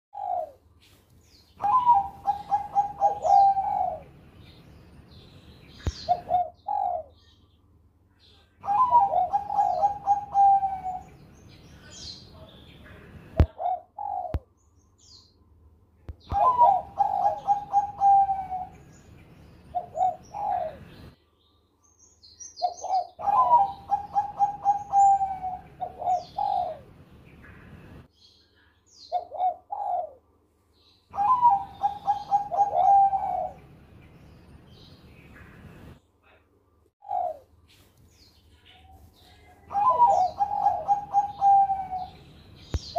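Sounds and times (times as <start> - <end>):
dove cooing: 0.1 - 0.7, 1.6 - 4.2, 5.8 - 7.3, 8.6 - 11.2, 12.9 - 14.5, 16.2 - 18.9, 19.7 - 21.1, 22.6 - 27.8, 29.1 - 30.3, 31.1 - 33.7, 37.0 - 37.6, 38.8 - 42.9.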